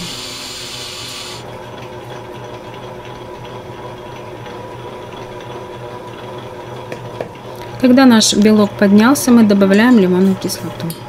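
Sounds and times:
electric mixer motor humming: 0:00.0 - 0:01.5.

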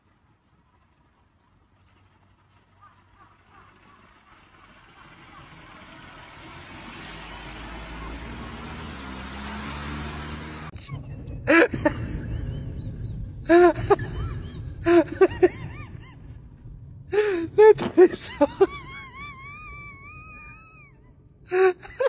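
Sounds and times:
car driving past: 0:01.5 - 0:10.8.

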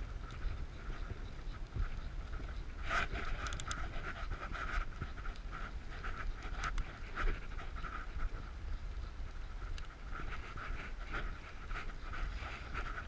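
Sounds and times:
bicycle tyre noise: 0:00.0 - 0:13.0
wind on microphone: 0:00.0 - 0:13.0
sharp ticks: 0:00.2 - 0:08.0.

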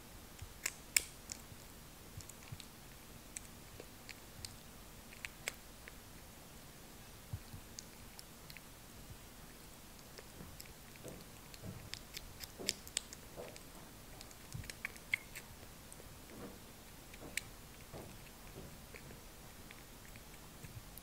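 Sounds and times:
kitten lapping and chewing: 0:00.3 - 0:21.0.

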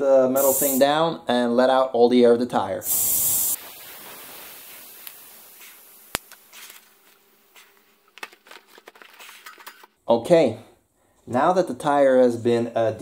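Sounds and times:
air hissing out of tyre valve: 0:00.4 - 0:00.8, 0:02.8 - 0:06.8
handling rustles and clicks: 0:05.6 - 0:10.0.

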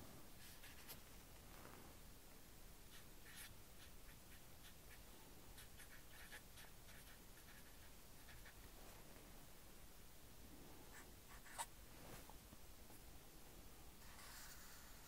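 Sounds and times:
marker writing on paper: 0:02.9 - 0:05.0, 0:05.6 - 0:08.6.

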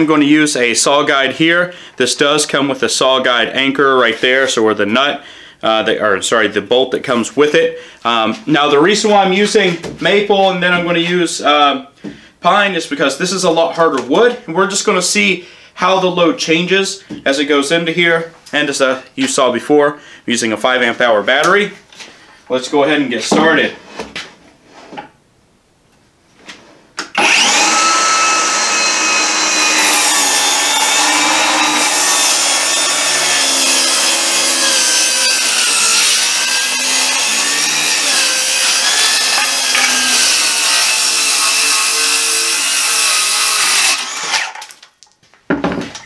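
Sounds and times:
circular saw cutting wood: 0:27.1 - 0:44.7
saw spinning down: 0:27.1 - 0:44.7.

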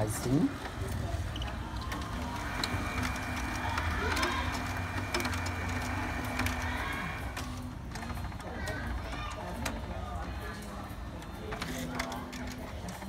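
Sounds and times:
printer motors whirring: 0:00.0 - 0:13.0
printer clicks: 0:01.4 - 0:09.9.

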